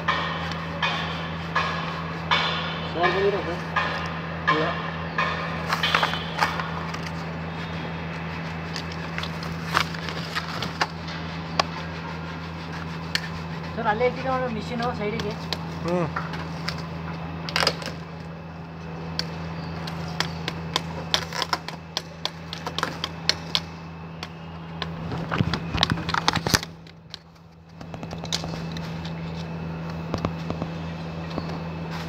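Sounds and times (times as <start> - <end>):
steady low hum: 0.0 - 32.0
blade scraping cable sheath: 19.8 - 23.7.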